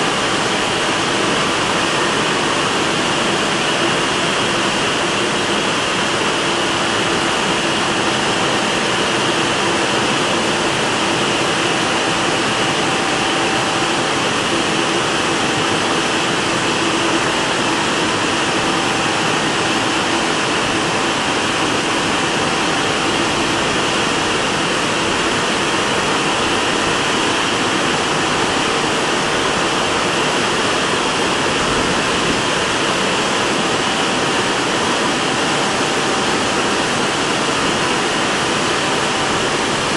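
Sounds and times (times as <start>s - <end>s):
car wash rushing noise: 0.0s - 39.9s.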